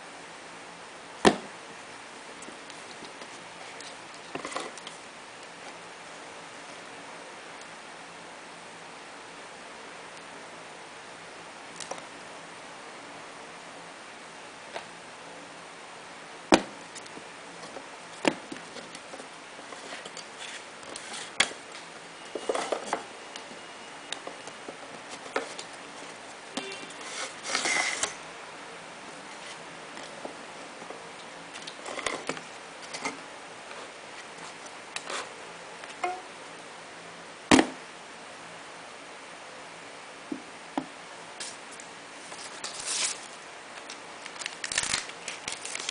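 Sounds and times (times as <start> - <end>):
rustling handling noise: 16.9 - 23.6, 41.4 - 45.9.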